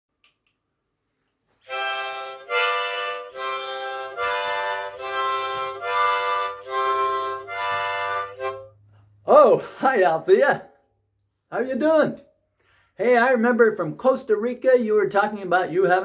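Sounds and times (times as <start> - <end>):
harmonica playing chords: 1.6 - 9.1.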